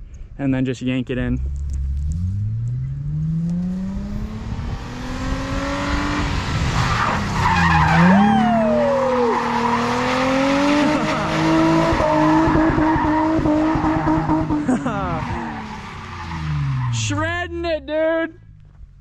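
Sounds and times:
car engine revving: 1.3s - 19.0s
tyre squeal: 6.8s - 17.1s.

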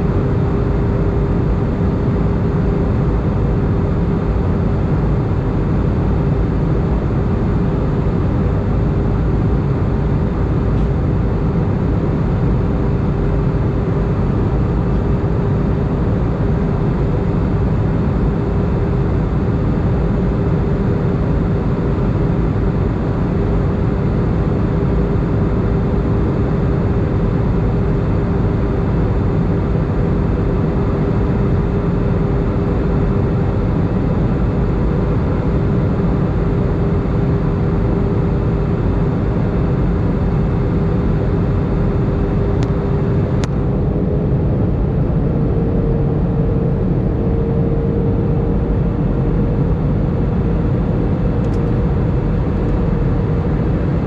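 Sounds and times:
steady humming tone: 0.0s - 54.0s
jet engines rumbling: 38.6s - 54.0s.

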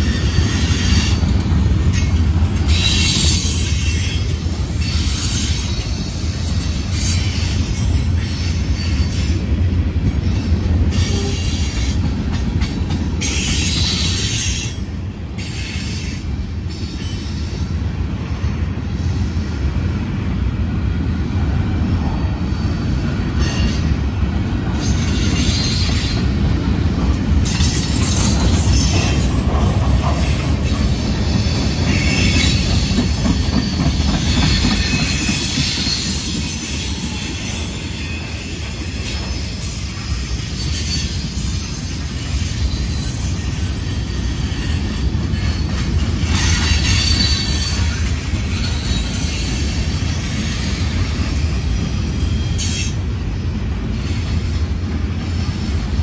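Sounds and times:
freight train wheels rumbling: 0.0s - 56.0s
high-pitched wheel squeal: 30.2s - 51.0s.

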